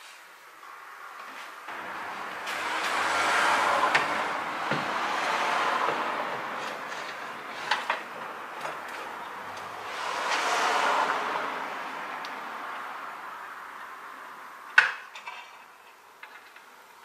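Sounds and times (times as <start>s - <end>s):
rushing noise: 1.7s - 14.2s.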